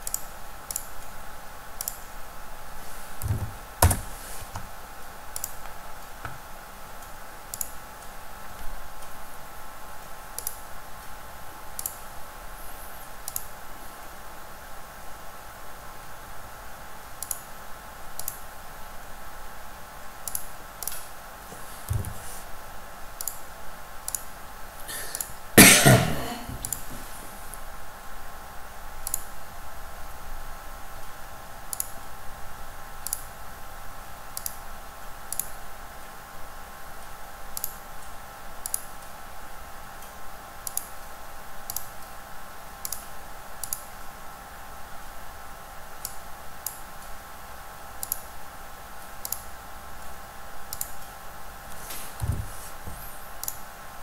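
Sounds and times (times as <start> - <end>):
computer mouse clicks: 0.0 - 1.1, 1.8 - 2.1, 5.3 - 5.8, 7.0 - 7.8, 10.4 - 10.6, 11.8 - 12.0, 13.2 - 13.5, 17.2 - 17.5, 18.2 - 18.4, 20.2 - 21.0, 23.2 - 23.4, 24.1 - 24.3, 29.0 - 29.3, 31.7 - 32.0, 33.0 - 33.3, 34.4 - 34.6, 35.3 - 35.6, 37.5 - 38.9, 40.0 - 40.9, 41.7 - 42.0, 42.8 - 43.9, 46.0 - 46.8, 48.0 - 48.3, 49.0 - 51.1, 53.4 - 53.6
steady background hum: 0.0 - 54.0.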